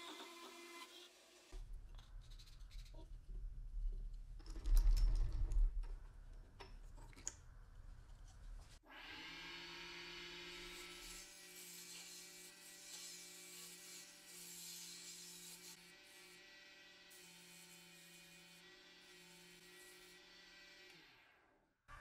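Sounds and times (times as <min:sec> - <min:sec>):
low rumbling with knocks and clicks: 0:01.6 - 0:08.8.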